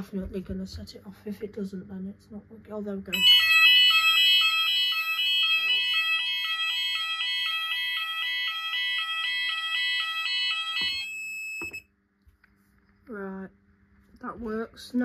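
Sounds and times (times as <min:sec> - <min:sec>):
two-tone fire alarm: 0:03.1 - 0:11.9.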